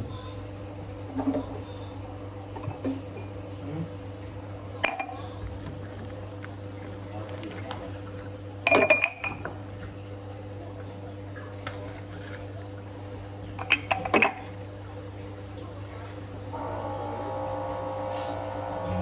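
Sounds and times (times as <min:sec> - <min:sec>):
low electrical hum: 0:00.0 - 0:19.0
dishes and glassware clinking: 0:04.8 - 0:05.2, 0:08.6 - 0:09.6, 0:13.6 - 0:14.5.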